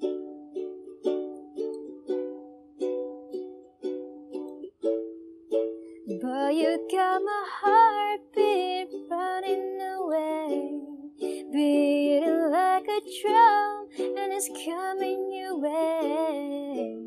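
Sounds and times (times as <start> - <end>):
ukulele strumming chords: 0.0 - 17.0
person singing: 6.1 - 17.0.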